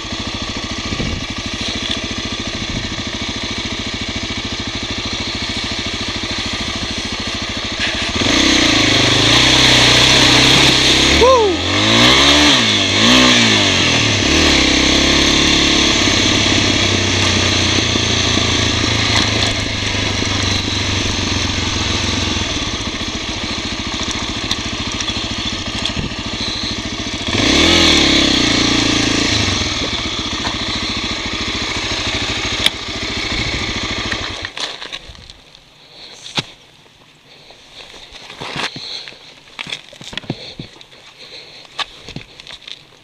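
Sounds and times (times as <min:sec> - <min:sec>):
motorcycle engine running: 0:00.0 - 0:36.4.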